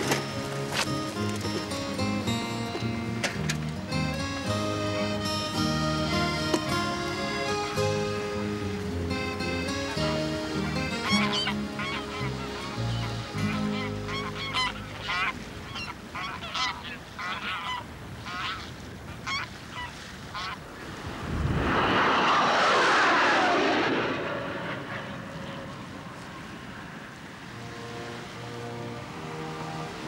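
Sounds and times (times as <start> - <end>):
geese honking in flight: 9.2 - 20.6
jet aircraft passing over: 20.6 - 30.0.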